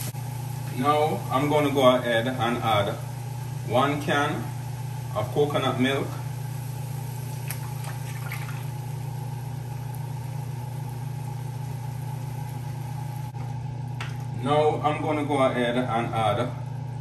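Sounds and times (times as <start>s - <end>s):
steady low hum: 0.0s - 17.0s
liquid pouring into frying pan: 6.4s - 13.2s
faint splashes: 7.3s - 8.8s.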